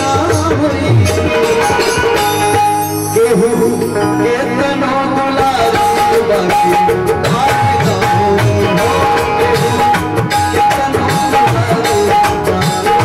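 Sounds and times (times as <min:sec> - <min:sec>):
electronic keyboard melody: 0:00.0 - 0:13.0
man singing: 0:00.0 - 0:13.0
steady drum beat: 0:05.5 - 0:13.0.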